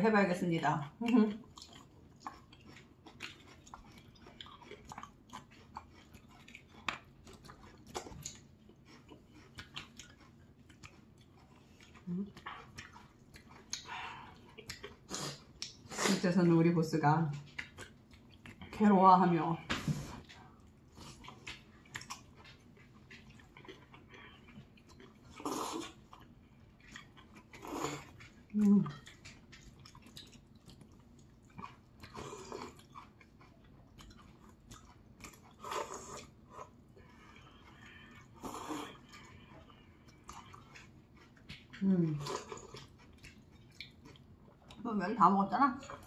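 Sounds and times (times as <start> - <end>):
people chewing food: 0.0 - 46.0.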